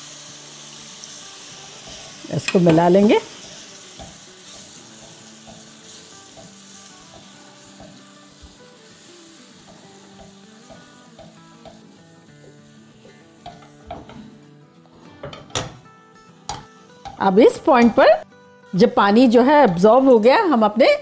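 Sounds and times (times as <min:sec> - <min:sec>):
semolina sizzling in a pan: 0:00.0 - 0:20.8
spatula stirring and scraping: 0:01.8 - 0:15.7.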